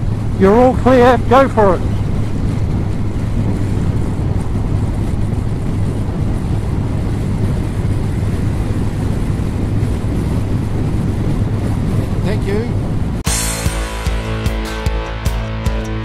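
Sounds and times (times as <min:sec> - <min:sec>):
wind rushing on microphone: 0:00.0 - 0:13.3
motorcycle engine drone: 0:12.9 - 0:16.0.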